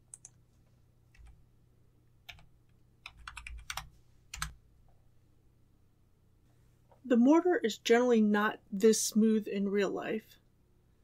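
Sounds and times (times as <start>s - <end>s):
faint keyboard typing: 0.0s - 1.4s, 2.2s - 4.6s.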